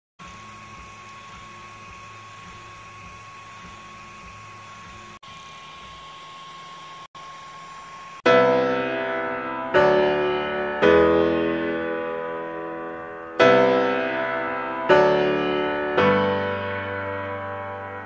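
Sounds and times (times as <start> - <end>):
machine hum and hiss: 0.2 - 8.4.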